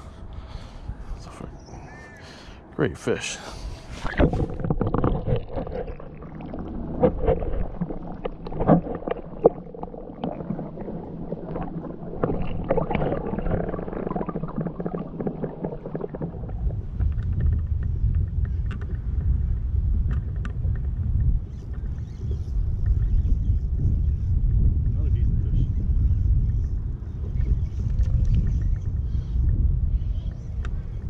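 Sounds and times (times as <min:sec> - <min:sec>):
steady low rumble: 0:00.0 - 0:31.0
muffled underwater sloshing: 0:03.5 - 0:31.0
underwater clicks and knocks: 0:04.0 - 0:23.2, 0:27.1 - 0:29.6.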